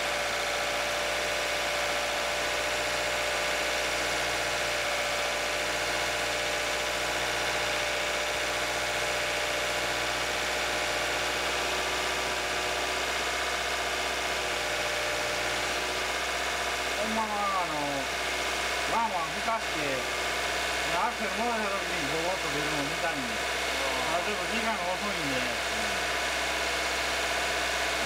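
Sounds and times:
car engine idling: 0.1 - 28.0.

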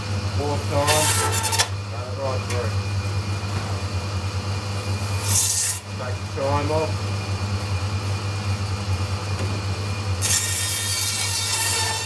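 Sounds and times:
bandsaw humming: 0.0 - 3.8, 4.7 - 7.0, 10.1 - 12.0
blade rasping through meat: 10.2 - 12.0.

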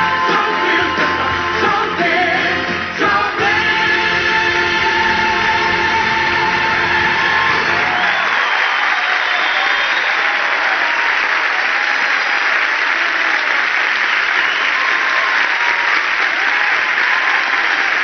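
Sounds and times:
audience applauding: 4.6 - 18.0.

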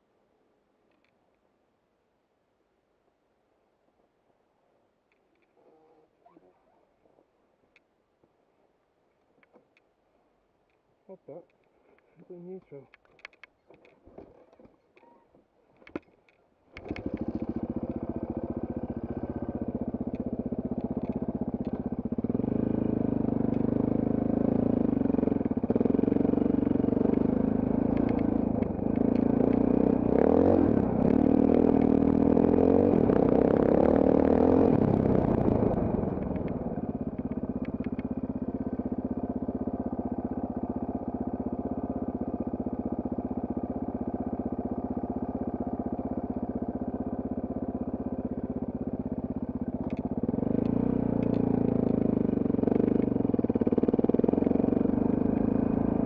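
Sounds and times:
motorcycle engine revving: 16.8 - 56.0.

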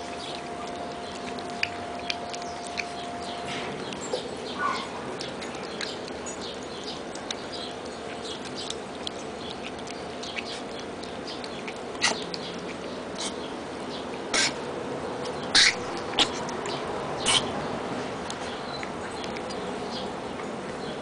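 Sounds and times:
puppies eating wet food: 0.0 - 21.0.

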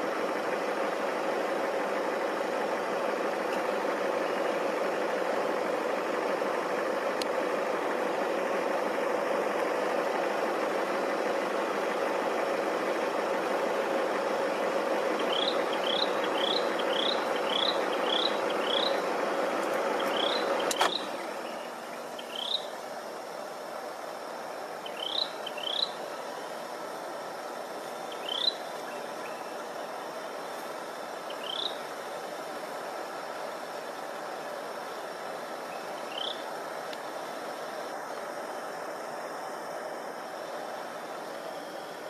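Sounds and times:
quiet hiss: 0.0 - 42.0
vehicle engines idling: 0.0 - 42.0
sharp click: 20.6 - 21.1.

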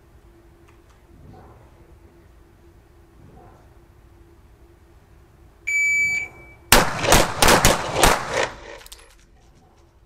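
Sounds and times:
electronic beep: 5.7 - 6.7.

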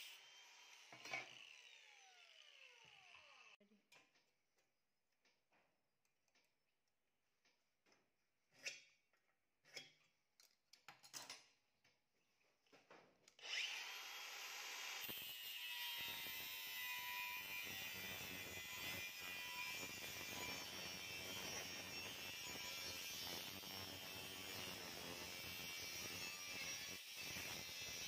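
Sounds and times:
angle grinder cutting steel: 0.0 - 3.6, 13.4 - 28.0
tools clicking and knocking: 5.2 - 12.0.

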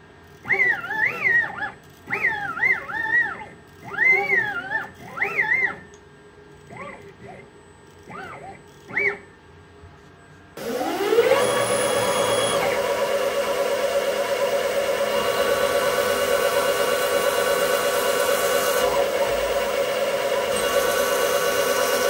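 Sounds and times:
drill boring into metal: 10.6 - 22.0
lathe spindle whine: 10.6 - 22.0.

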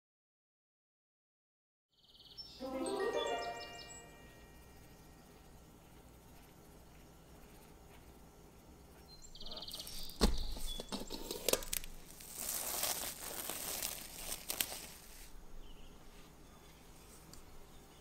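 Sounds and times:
plastic cling film crinkling: 9.7 - 15.4.

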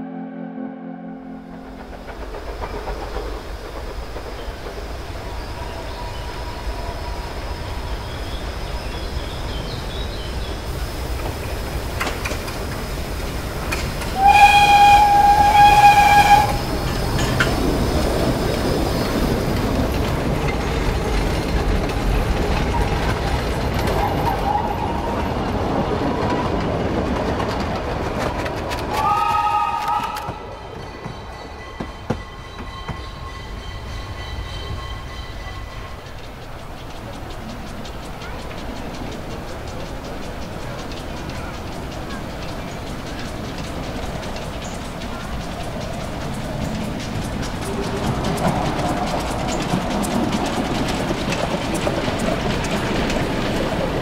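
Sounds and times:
train wheels rolling over rails: 1.4 - 54.0
steam locomotive whistle: 14.0 - 17.3, 28.9 - 30.7.

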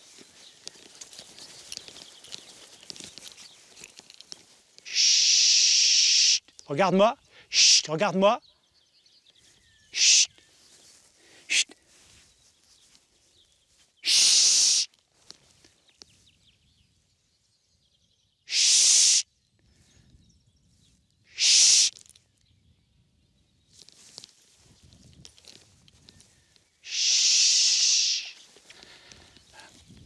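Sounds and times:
man hushing: 11.4 - 11.8.

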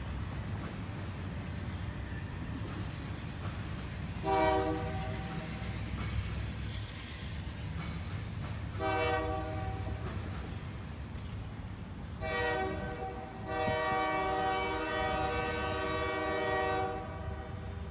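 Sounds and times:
train rumbling: 0.0 - 17.9
locomotive air horn blasts: 4.2 - 5.4, 8.8 - 10.0, 12.2 - 17.7.

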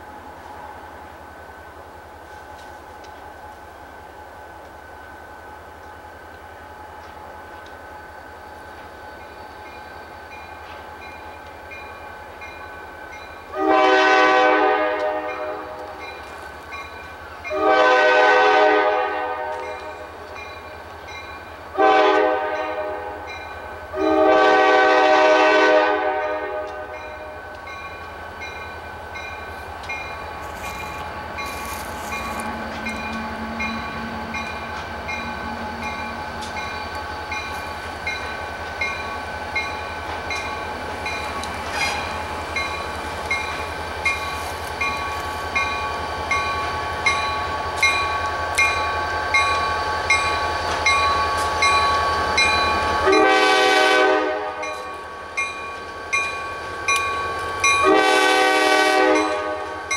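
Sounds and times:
locomotive engine rumble: 0.0 - 59.9
locomotive air horn: 13.5 - 16.0, 17.5 - 19.9, 21.8 - 23.3, 23.9 - 27.0, 53.0 - 54.8, 57.8 - 59.8.

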